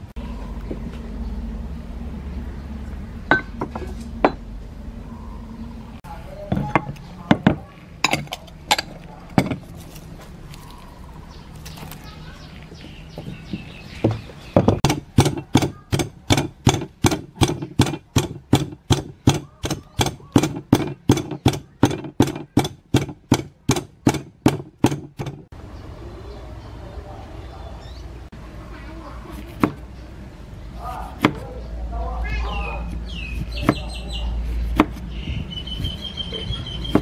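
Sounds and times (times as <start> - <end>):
pestle pounding in mortar: 6.5 - 9.8, 13.2 - 25.5
knocks: 13.2 - 25.5.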